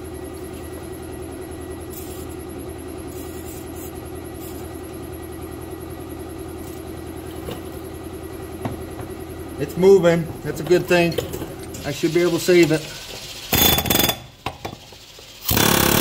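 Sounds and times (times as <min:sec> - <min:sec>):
air compressor running: 0:00.0 - 0:16.0.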